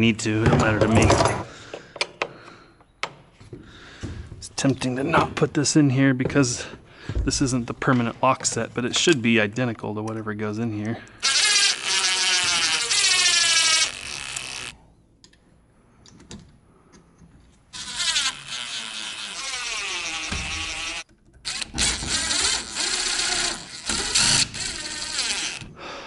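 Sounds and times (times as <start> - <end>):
cordless drill driving screws: 11.2 - 14.8, 17.7 - 25.7.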